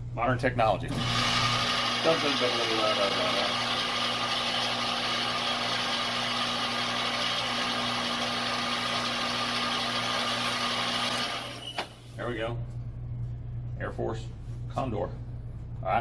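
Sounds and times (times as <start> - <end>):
electric motor humming and whirring: 0.9 - 12.0.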